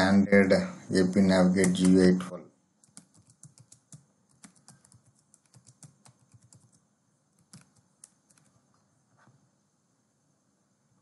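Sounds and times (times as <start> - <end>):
faint keyboard typing: 1.0 - 2.1, 2.8 - 9.4.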